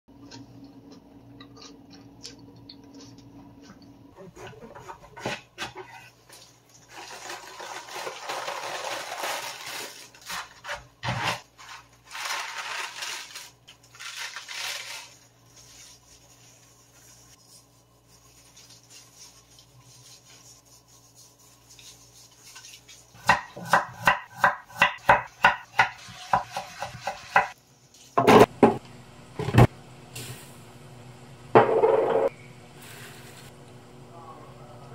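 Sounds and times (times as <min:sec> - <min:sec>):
cabbage leaves rustling and crunching: 0:06.8 - 0:17.4.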